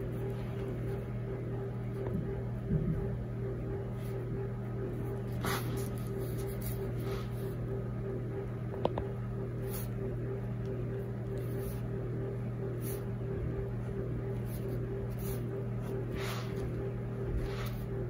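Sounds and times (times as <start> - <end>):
electrical hum: 0.0 - 18.0
pen scratching on paper: 5.2 - 7.6, 11.3 - 11.9, 14.3 - 18.0.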